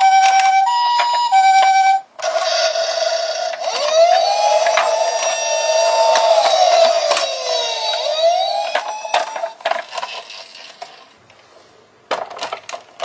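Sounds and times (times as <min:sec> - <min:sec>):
toy electronic siren wailing: 0:00.0 - 0:09.7
plastic toy clicks and knocks on wood: 0:08.6 - 0:11.0, 0:12.1 - 0:13.0.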